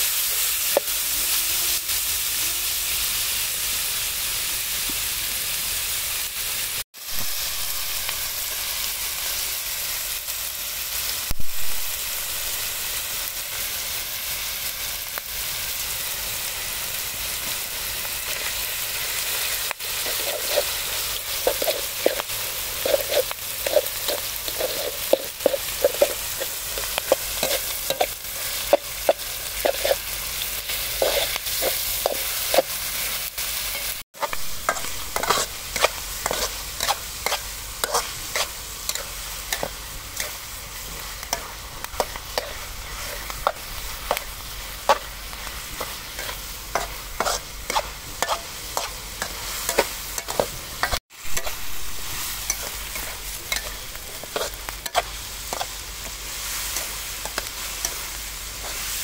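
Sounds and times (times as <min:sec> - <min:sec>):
food sizzling in a hot pan: 0:00.0 - 0:59.0
utensil scraping and tapping pan: 0:45.8 - 0:51.5.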